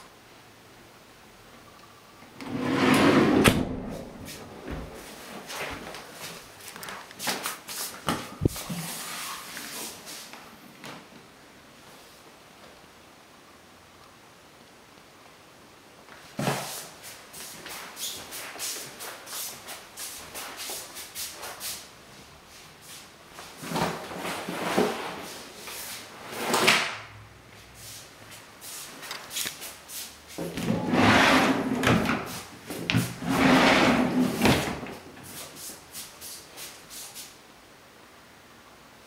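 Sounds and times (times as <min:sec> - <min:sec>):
closet doors sliding and rattling: 0:02.3 - 0:06.0, 0:23.5 - 0:27.1, 0:30.4 - 0:35.4
footsteps: 0:03.9 - 0:11.0
scrape: 0:08.7 - 0:10.3, 0:23.6 - 0:26.7, 0:30.7 - 0:32.5, 0:33.2 - 0:34.6.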